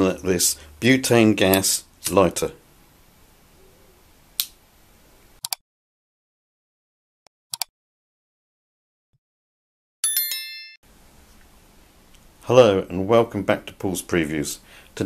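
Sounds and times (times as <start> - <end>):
click: 7.5 - 7.7
bell-like notification chime: 10.0 - 10.8.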